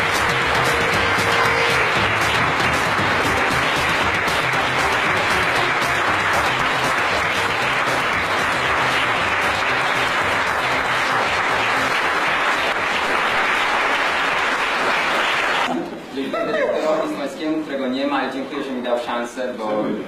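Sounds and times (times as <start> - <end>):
music playing: 0.0 - 12.7
audience applauding: 0.0 - 15.7.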